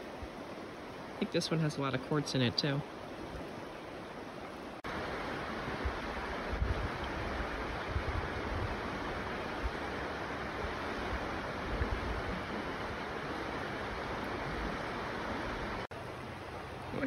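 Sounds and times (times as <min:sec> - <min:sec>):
river running over rocks: 0:00.0 - 0:17.0.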